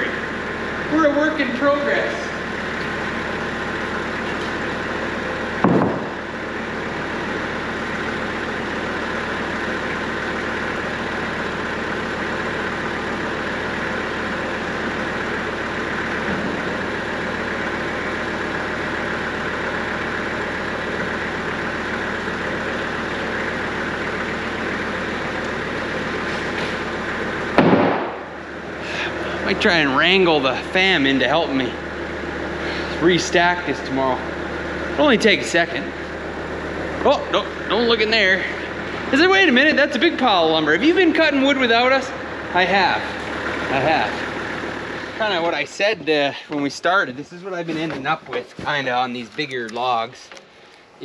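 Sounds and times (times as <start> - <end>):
tractor engine running: 0.0 - 51.0
loud thump: 5.6 - 6.2, 27.6 - 28.3.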